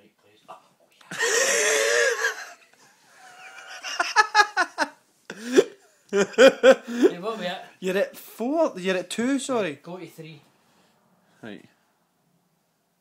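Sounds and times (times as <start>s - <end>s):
men laughing: 1.1s - 7.4s.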